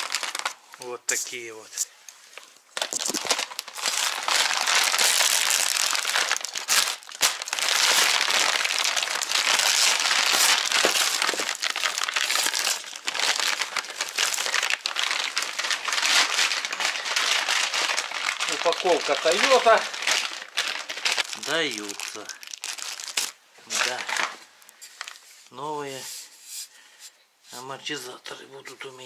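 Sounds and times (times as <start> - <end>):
plastic wrapping crinkling: 0.0 - 1.5, 2.2 - 25.6.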